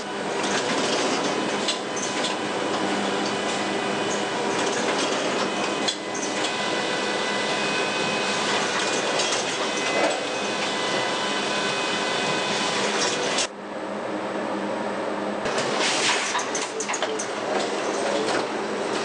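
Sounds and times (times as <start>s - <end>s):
machine whining tones: 0.0s - 13.5s
machinery clatter and whir: 0.0s - 13.6s, 15.4s - 19.0s.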